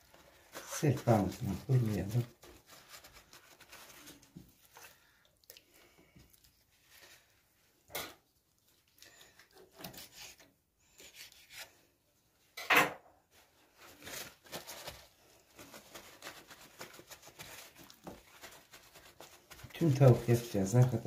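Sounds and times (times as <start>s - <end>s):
paper towel rubbing chicken: 0.0s - 5.1s, 9.4s - 11.7s, 13.3s - 21.0s.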